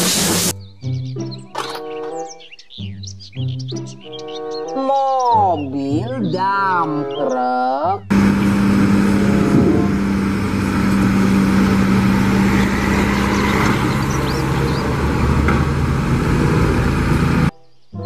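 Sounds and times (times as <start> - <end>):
diesel truck engine hum: 8.0 - 17.5.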